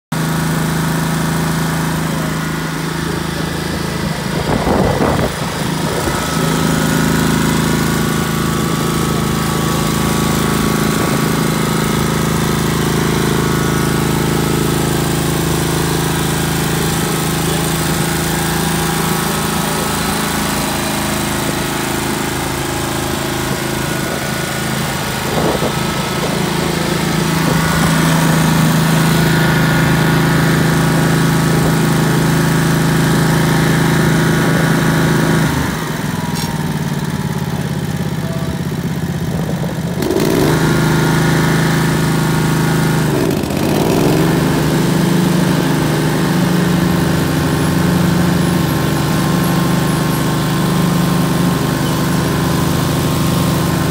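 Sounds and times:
mower engine idling: 0.1 - 53.9.

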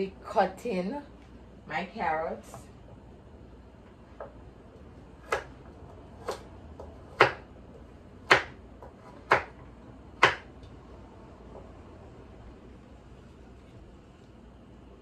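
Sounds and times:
knife chopping on wooden board: 5.2 - 7.5, 8.2 - 10.5.

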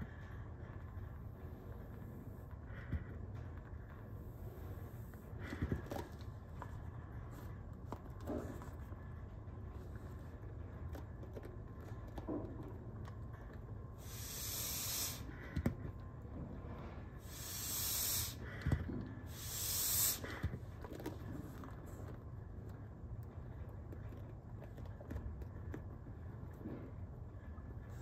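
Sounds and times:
air hissing from resuscitator bag: 14.0 - 15.4, 17.2 - 18.6, 19.3 - 20.5.

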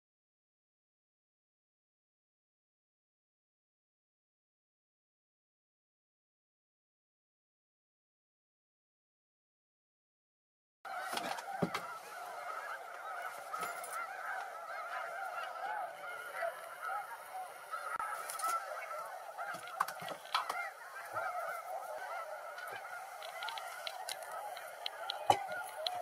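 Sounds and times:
flock of geese honking: 10.9 - 26.0.

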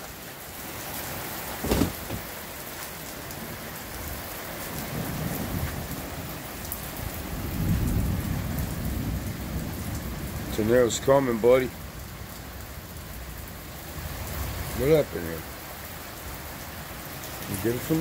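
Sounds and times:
heavy rain pouring: 0.0 - 18.0
short thump: 1.6 - 2.3
low rumble of thunder: 4.8 - 14.8.

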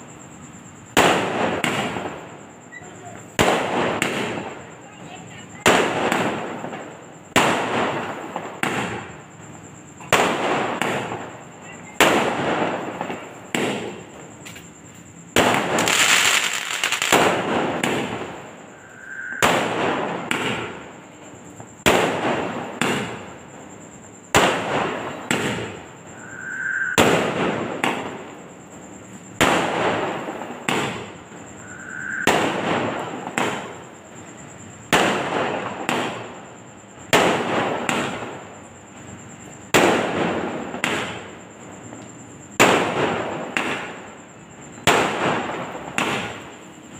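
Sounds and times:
firework shells bursting: 15.3 - 20.9, 24.3 - 33.9.

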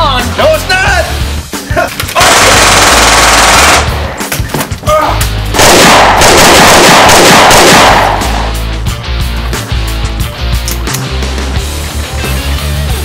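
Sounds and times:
rock music: 0.0 - 13.0
automatic rifle fire: 2.2 - 3.9, 5.6 - 8.4.

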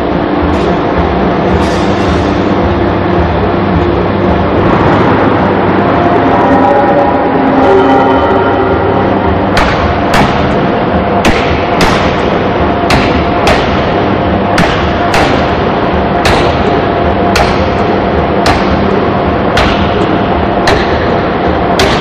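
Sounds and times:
machine running noise: 0.0 - 22.0
forging hammer blows on metal: 9.5 - 22.0.

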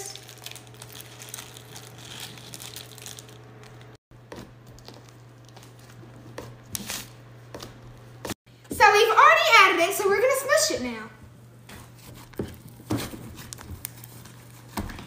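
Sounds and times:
packet crinkling: 0.0 - 4.0.

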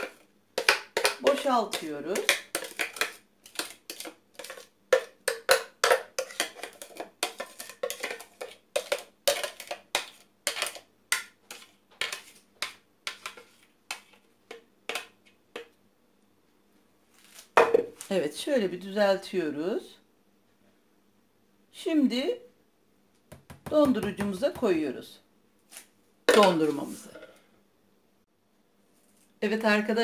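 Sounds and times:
utensil scraping plastic bowl: 0.0 - 14.3.

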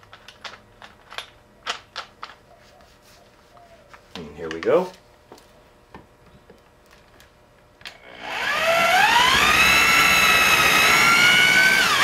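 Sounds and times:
electric drill motor whine: 7.9 - 12.0.

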